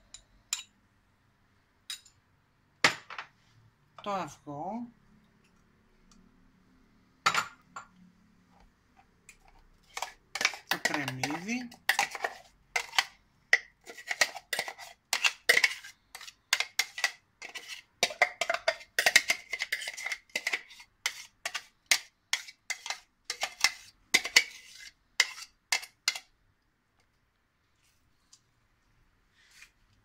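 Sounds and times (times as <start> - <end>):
metal spoon scraping glass bowl: 9.4 - 13.2, 13.8 - 26.2.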